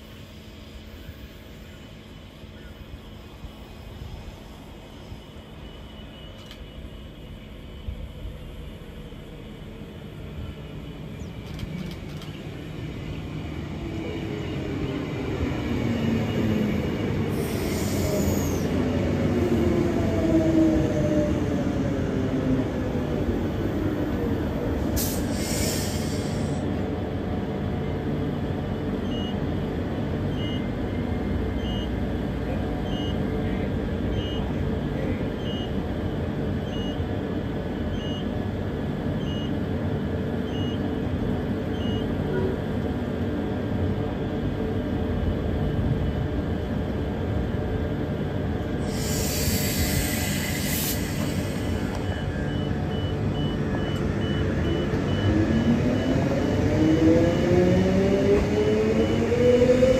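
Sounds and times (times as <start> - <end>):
short hisses: 25.0 - 26.6, 48.8 - 51.9
beeps: 30.3 - 30.7, 31.6 - 31.9, 32.8 - 33.2, 34.1 - 34.5, 35.4 - 35.8, 36.6 - 37.0, 40.5 - 40.8, 41.7 - 42.1, 52.0 - 56.2.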